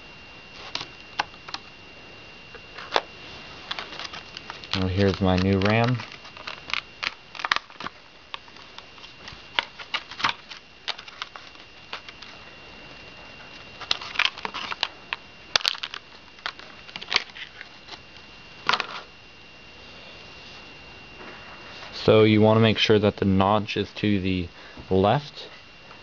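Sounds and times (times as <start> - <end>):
plastic packaging crackling: 2.7 - 12.5, 13.4 - 19.1.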